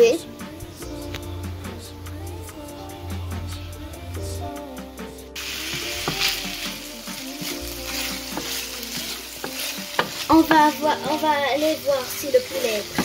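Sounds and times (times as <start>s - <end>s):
background music: 0.0s - 13.0s
chicken sizzling in a pan: 5.4s - 13.0s.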